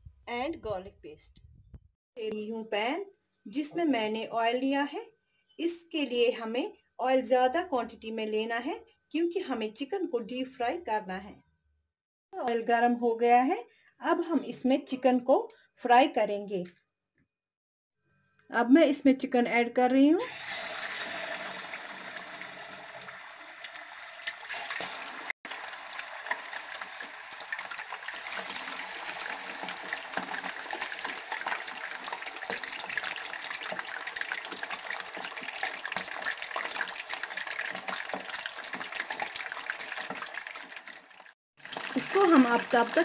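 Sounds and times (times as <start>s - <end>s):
chicken deep-frying in oil: 20.2s - 43.0s.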